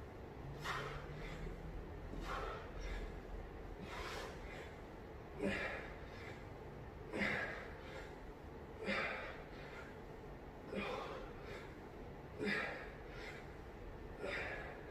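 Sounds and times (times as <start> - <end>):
man breathing hard: 0.4 - 14.9.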